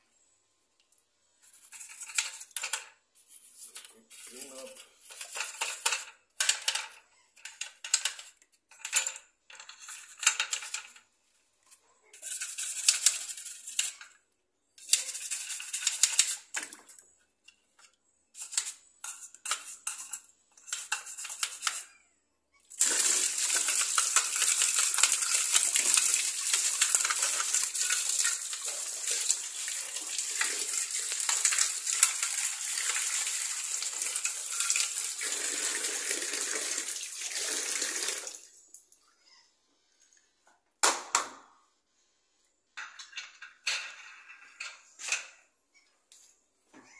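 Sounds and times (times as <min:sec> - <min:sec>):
toothbrush scrubbing plastic: 0:12.2 - 0:14.2, 0:14.8 - 0:16.7, 0:18.4 - 0:22.0, 0:22.7 - 0:38.1.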